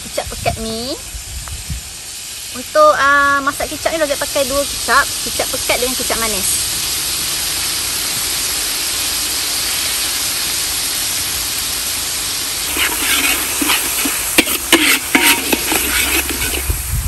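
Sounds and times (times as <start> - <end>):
paste sizzling in a wok: 0.1 - 17.0
metal spatula scraping wok: 12.6 - 17.0.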